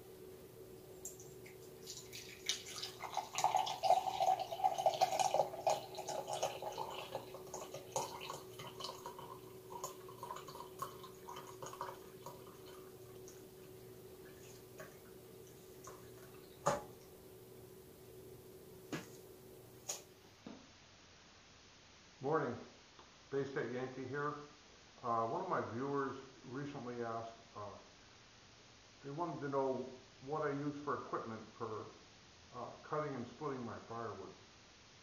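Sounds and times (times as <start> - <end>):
faint steady hum: 0.0 - 35.0
coffee pouring into a mug: 0.8 - 17.1.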